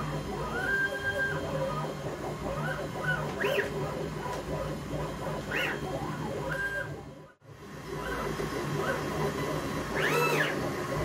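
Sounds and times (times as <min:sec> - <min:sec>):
machine hum: 0:00.0 - 0:11.0
stepper motors whining: 0:00.0 - 0:11.0.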